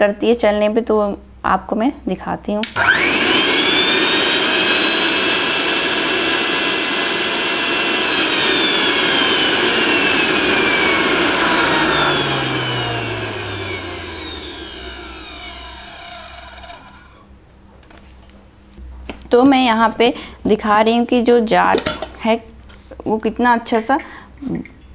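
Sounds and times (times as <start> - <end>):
mixer grinder motor whining: 2.6 - 17.2.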